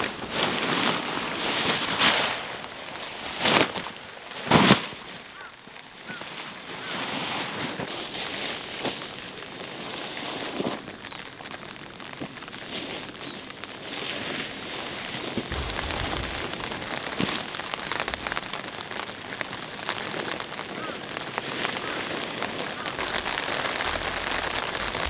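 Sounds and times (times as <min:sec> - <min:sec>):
tent fabric rustling and flapping: 0:13.8 - 0:20.4, 0:21.4 - 0:25.0
wind blowing: 0:15.4 - 0:19.8, 0:22.4 - 0:25.0.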